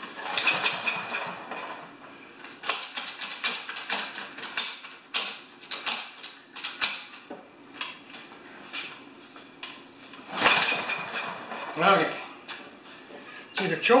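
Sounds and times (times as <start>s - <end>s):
mower engine cranking on pull rope: 0.0s - 1.9s, 10.2s - 12.2s.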